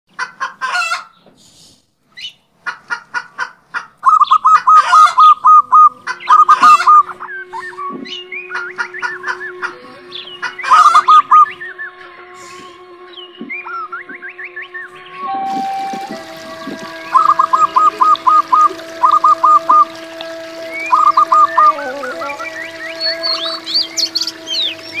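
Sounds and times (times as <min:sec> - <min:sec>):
bird-like calls and clicks: 0:04.0 - 0:09.5
steady held tones: 0:04.0 - 0:25.0.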